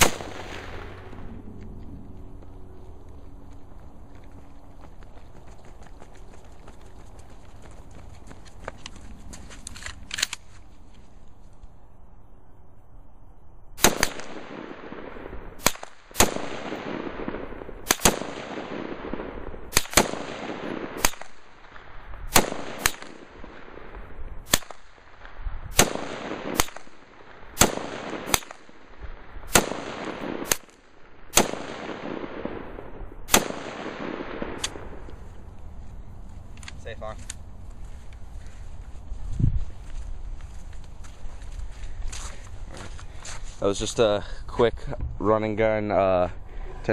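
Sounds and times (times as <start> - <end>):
rifle shots with echo: 0.0 - 1.4, 13.8 - 35.2.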